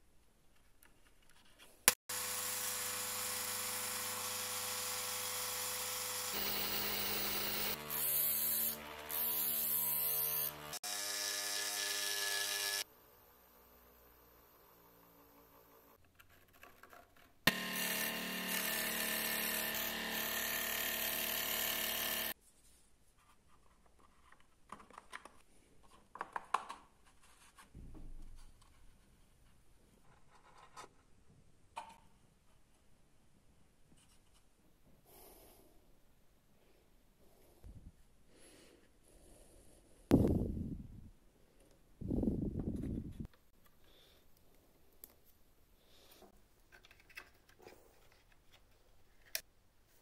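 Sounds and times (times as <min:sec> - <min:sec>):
electric disc sander running: 0:02.1 - 0:11.1, 0:17.5 - 0:22.3
wooden parts clicking and knocking: 0:46.6 - 0:49.4.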